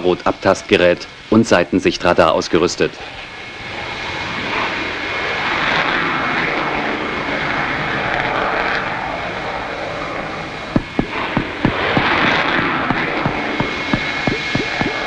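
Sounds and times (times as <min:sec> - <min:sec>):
jet engine roar: 0:00.0 - 0:15.0
high-pitched whine: 0:10.4 - 0:15.0
short knocks: 0:10.8 - 0:12.2.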